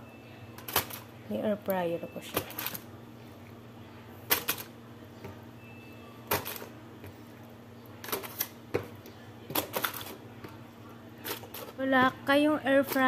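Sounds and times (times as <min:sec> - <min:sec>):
low steady hum: 0:00.0 - 0:13.0
aluminium foil crinkling: 0:11.2 - 0:11.8.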